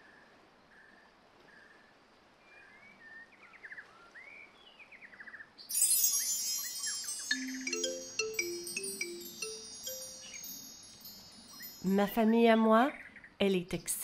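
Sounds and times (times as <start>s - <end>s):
faint background hiss: 0.0s - 14.0s
shimmering chimes: 5.7s - 12.4s.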